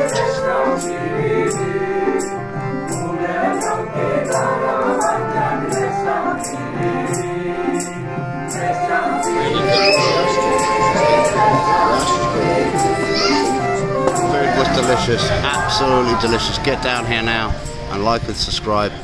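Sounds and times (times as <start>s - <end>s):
jingling percussion beat: 0.0s - 19.0s
person singing: 8.5s - 17.3s.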